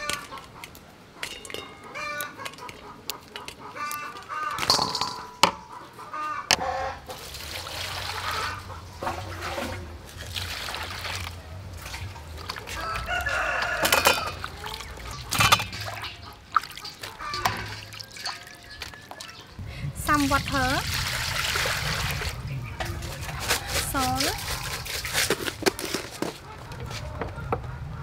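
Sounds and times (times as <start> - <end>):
chickens clucking: 0.0 - 7.2, 7.9 - 10.0, 11.6 - 19.6, 22.3 - 28.0
rooster crowing: 12.7 - 14.8
water poured into metal bowl: 13.8 - 19.3, 20.0 - 22.4.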